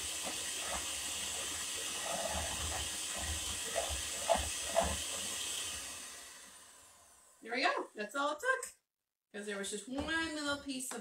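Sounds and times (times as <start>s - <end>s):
electric hand mixer whirring: 0.0s - 7.4s.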